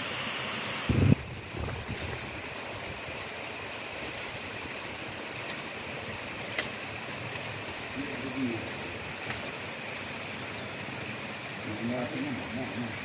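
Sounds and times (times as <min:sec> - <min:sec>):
dry twigs snapping: 0:06.4 - 0:07.5.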